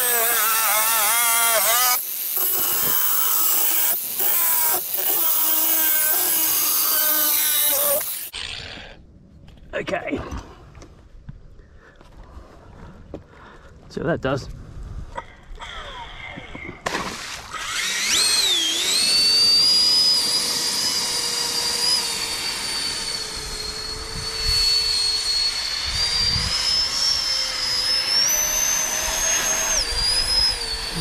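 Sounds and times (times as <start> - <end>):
electric motor and propeller whining: 0.0 - 9.1, 15.4 - 31.0.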